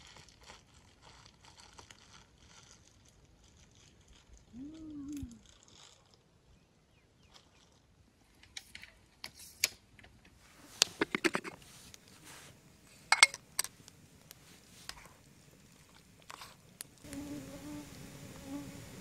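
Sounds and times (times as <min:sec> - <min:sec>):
metal utensil scraping cookware: 0:10.8 - 0:11.7, 0:12.9 - 0:13.8
low buzzing hum: 0:11.5 - 0:19.0.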